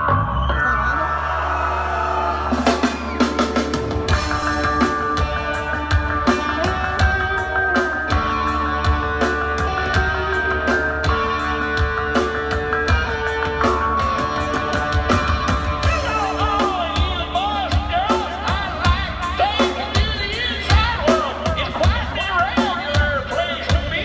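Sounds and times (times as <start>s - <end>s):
bass notes: 0.0s - 24.0s
drum kit: 0.0s - 24.0s
electric guitar lines: 2.8s - 17.9s.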